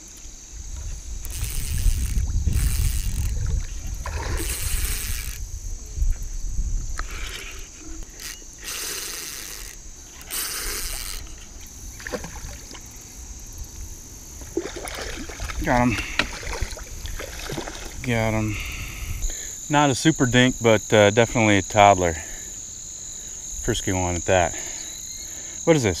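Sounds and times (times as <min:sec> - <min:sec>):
high buzz of insects: 0:00.0 - 0:26.0
spinning reel cranking: 0:01.2 - 0:03.5, 0:04.3 - 0:05.4, 0:07.0 - 0:11.5.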